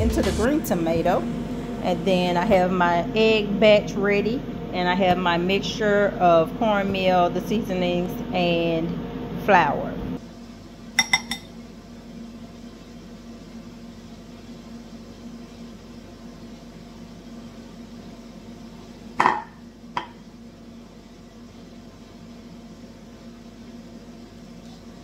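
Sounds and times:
low hum: 0.0s - 13.4s
ringing clink: 11.0s - 11.5s.

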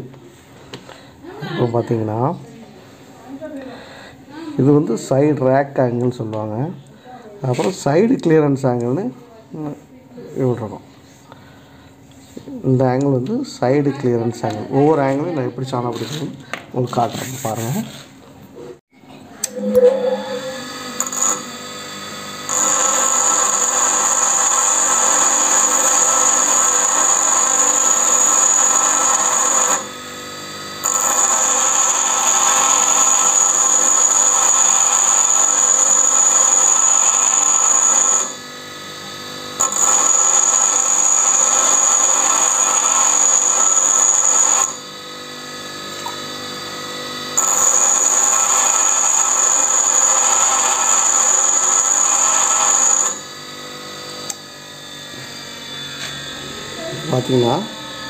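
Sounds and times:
grinder grinding steel: 15.2s - 18.8s, 19.4s - 58.0s
grinder running unloaded: 19.4s - 58.0s.

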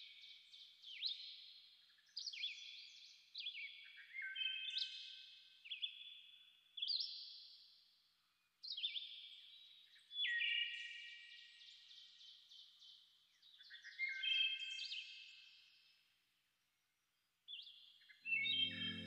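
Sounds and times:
high clear chime tones: 18.4s - 19.0s.

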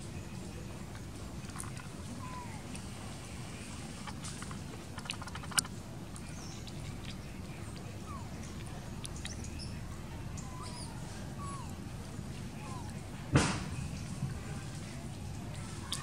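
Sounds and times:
faint chirps: 3.4s - 11.8s.

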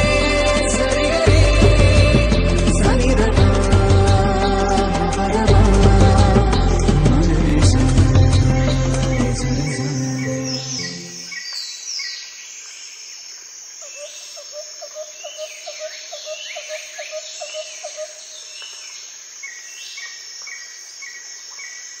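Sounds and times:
quick run of low notes: 0.0s - 10.6s
birds chirping: 0.0s - 12.7s, 13.8s - 22.0s.

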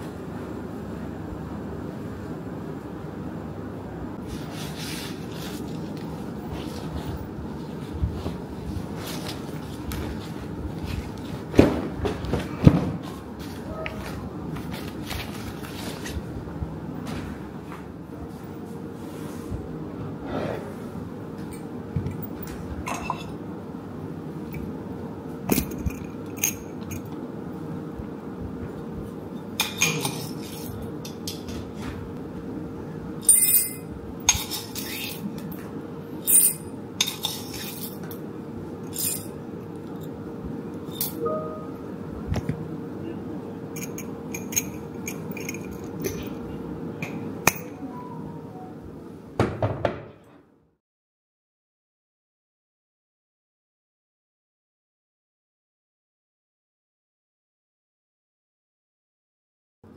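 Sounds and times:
faint steady hum: 0.0s - 49.4s
metal spoon clinking on glass jar: 43.8s - 46.2s.

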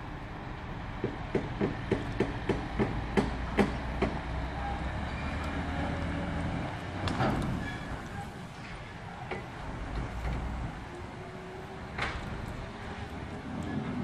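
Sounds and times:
trailer knocks and clanks: 1.0s - 4.6s, 6.6s - 10.7s, 11.8s - 14.0s.

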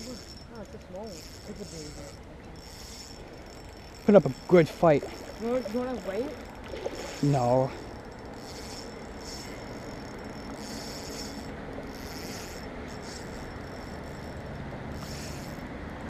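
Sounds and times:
fishing reel clicking and grinding: 0.0s - 16.0s.

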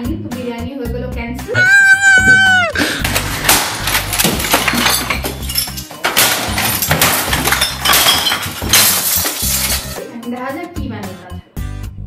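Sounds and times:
crashes of smashing: 1.8s - 10.0s
glass breaking: 2.0s - 10.0s
debris clinking: 2.8s - 10.0s.

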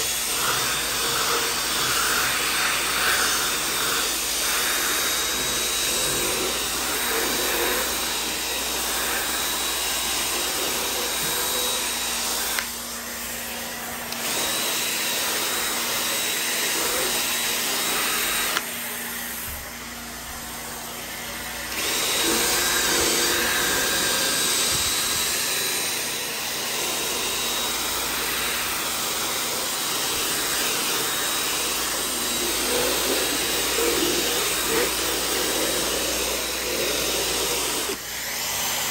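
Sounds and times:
cordless drill spinning scrub brush: 0.0s - 38.9s.

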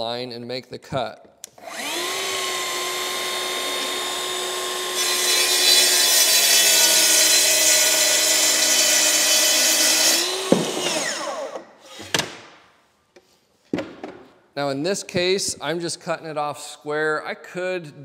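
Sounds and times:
track saw cutting wood: 1.5s - 12.2s.

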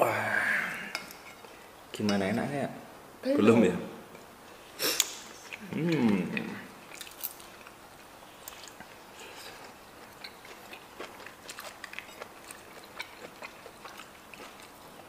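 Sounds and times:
people chewing crunchy food: 4.8s - 15.0s.

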